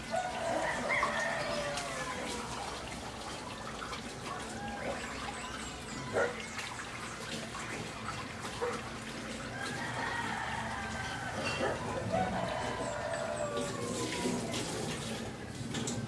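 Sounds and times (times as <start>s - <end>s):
distant chicken calls: 0.0s - 7.4s, 8.6s - 15.6s.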